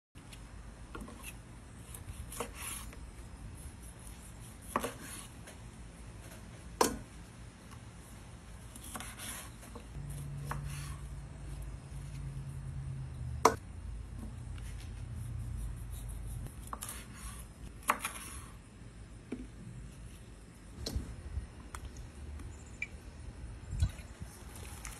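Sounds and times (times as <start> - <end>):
knife cutting raw chicken: 1.0 - 3.0, 3.8 - 5.3, 8.7 - 11.0, 15.2 - 18.5.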